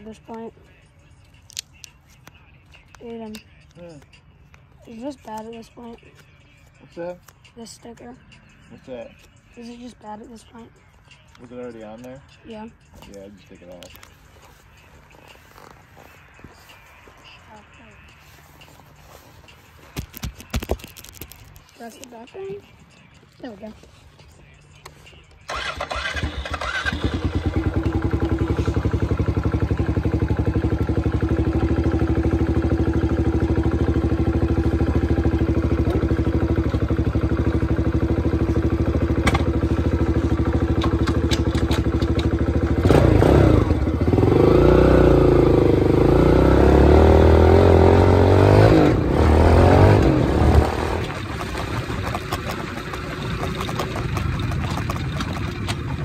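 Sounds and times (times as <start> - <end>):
engine starting and revving: 25.5 - 29.6, 40.7 - 56.0.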